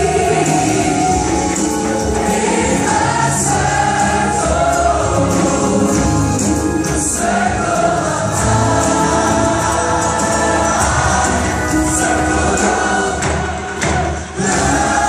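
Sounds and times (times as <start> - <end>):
children's choir singing: 0.0 - 15.0
instrumental accompaniment: 0.0 - 15.0.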